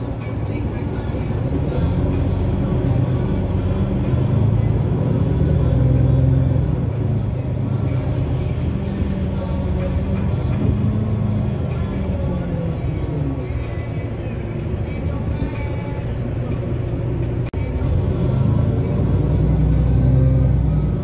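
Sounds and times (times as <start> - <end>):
bus engine humming: 0.0 - 21.0
road and rattle noise: 0.0 - 21.0.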